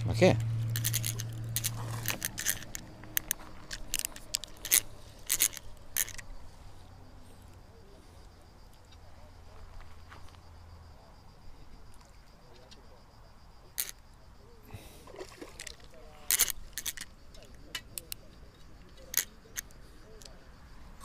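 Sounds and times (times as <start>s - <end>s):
high insect chirring: 0.0s - 21.0s
fishing reel clicks and rattles: 0.1s - 6.3s, 13.8s - 14.0s, 15.6s - 18.2s, 18.9s - 20.3s.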